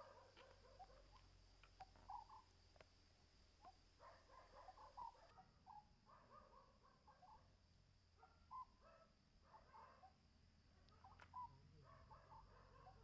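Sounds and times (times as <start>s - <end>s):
owl chattering calls: 1.8s - 2.5s, 4.7s - 5.8s.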